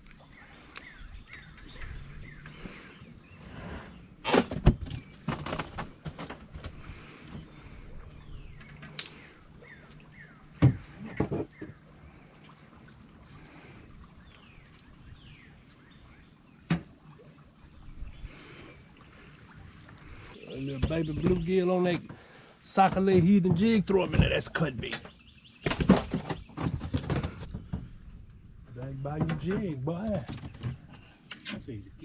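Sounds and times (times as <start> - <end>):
birds chirping: 0.0 - 32.0
hollow knocks in aluminum boat: 10.6 - 11.8, 20.7 - 28.0, 28.8 - 31.6.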